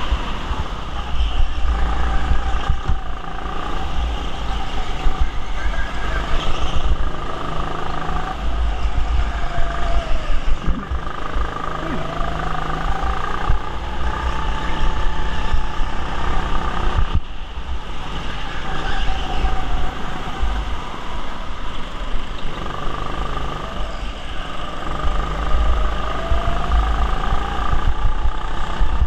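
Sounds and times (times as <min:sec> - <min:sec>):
go-kart motor whine: 0:00.0 - 0:29.0
heavy low rumble: 0:06.8 - 0:16.3.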